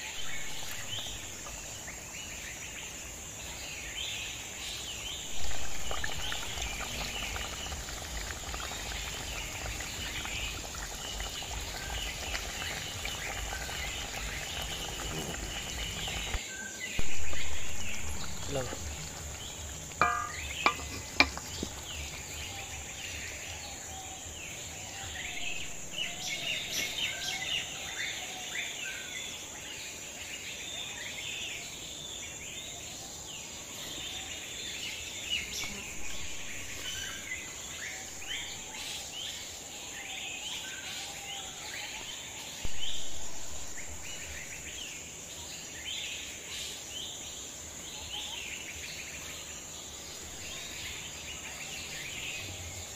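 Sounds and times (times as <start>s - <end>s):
birds chirping: 0.0s - 28.5s
high insect drone: 0.0s - 31.0s, 33.5s - 41.3s.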